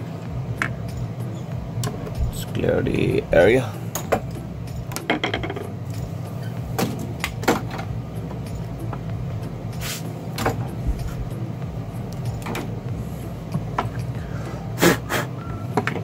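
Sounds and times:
low hum: 0.0 - 16.0
hand tools knocking on wooden bench: 4.9 - 5.8.

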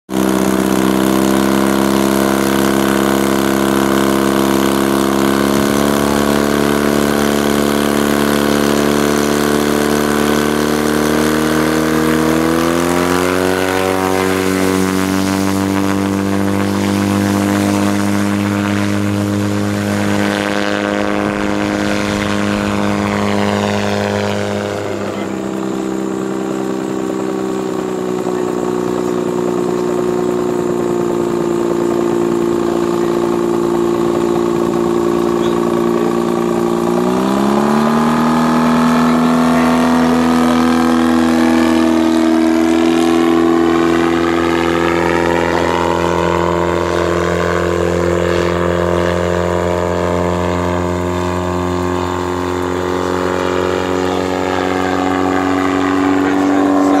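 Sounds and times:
gyrocopter engine and propeller: 0.0 - 57.0.

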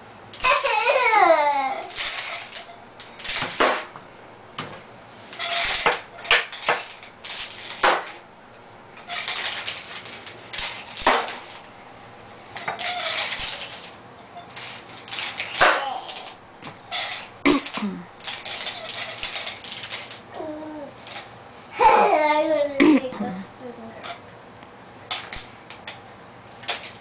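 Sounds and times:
wooden toy pieces clattering: 0.3 - 4.0, 4.6 - 8.2, 9.0 - 11.7, 12.6 - 21.3, 25.1 - 27.0.

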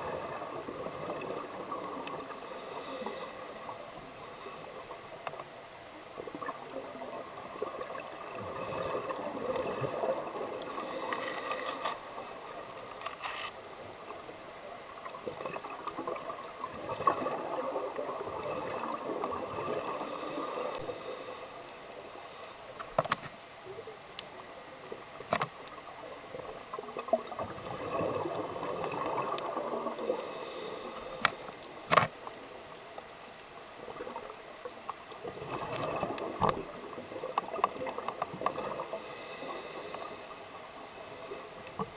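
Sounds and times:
scuba regulator breathing: 2.3 - 5.1, 10.6 - 12.6, 19.5 - 22.8, 30.0 - 32.0, 38.8 - 41.7.

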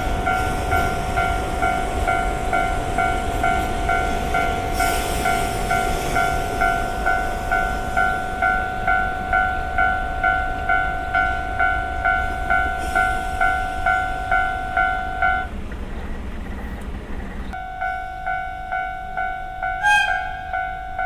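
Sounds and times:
diesel locomotive rumbling past: 0.0 - 21.0
level crossing bell ringing: 17.6 - 21.0.

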